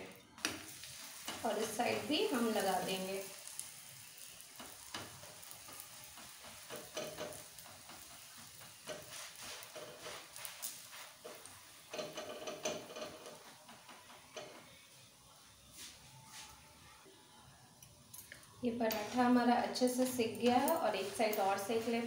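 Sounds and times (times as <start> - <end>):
bread sizzling on hot pan: 0.0 - 16.5, 18.7 - 22.0
brush scraping across bread: 8.2 - 11.7.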